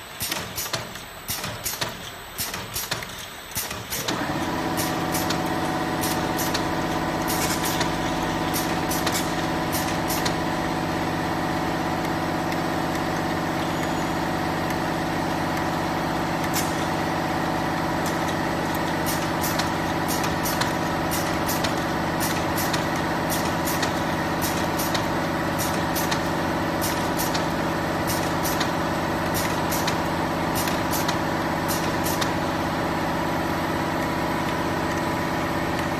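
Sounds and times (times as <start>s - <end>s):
capping machine hum: 0.0s - 35.9s
sharp machine clicks: 0.2s - 10.5s, 16.3s - 32.6s.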